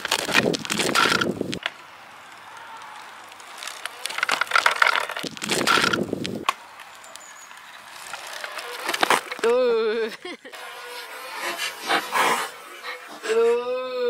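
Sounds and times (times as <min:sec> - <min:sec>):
faint steady hiss: 0:00.0 - 0:10.5.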